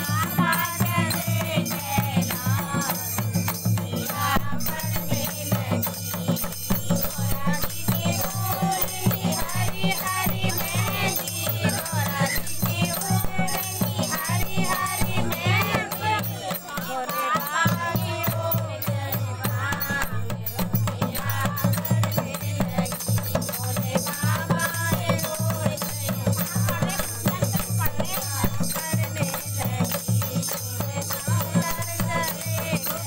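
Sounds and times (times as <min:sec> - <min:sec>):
rhythmic hand clapping: 0:00.0 - 0:20.1
dholak drum beats: 0:00.0 - 0:33.0
women singing in chorus: 0:00.0 - 0:33.0.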